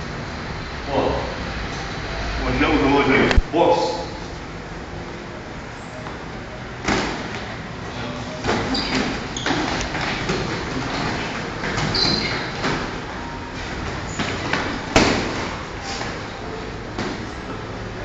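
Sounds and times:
boxing gloves thudding: 6.8s - 7.5s, 8.4s - 16.2s, 16.9s - 17.4s.

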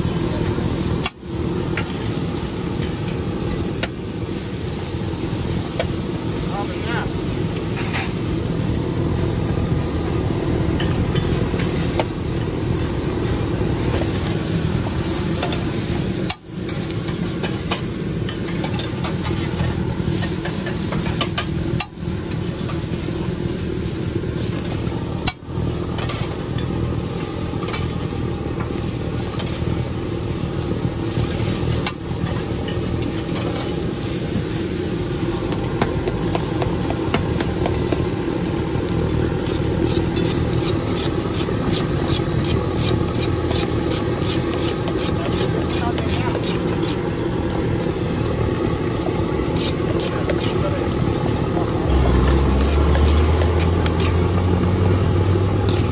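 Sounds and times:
food sizzling: 0.0s - 55.9s
steady background noise: 0.0s - 55.9s.

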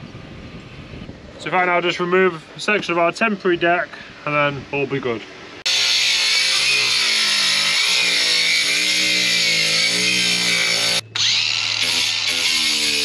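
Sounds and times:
angle grinder cutting: 5.6s - 13.0s.

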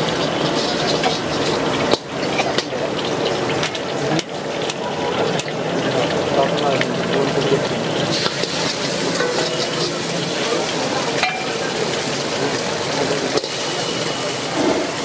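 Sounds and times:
food sizzling in pan: 0.0s - 6.3s, 6.9s - 15.0s
utensil striking pan: 8.1s - 11.8s, 13.2s - 14.0s.

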